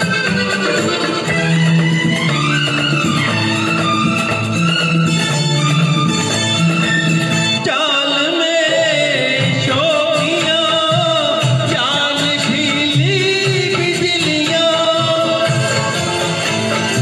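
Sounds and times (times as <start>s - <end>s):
instrumental backing music: 0.0s - 17.0s
man singing into microphone: 7.6s - 17.0s.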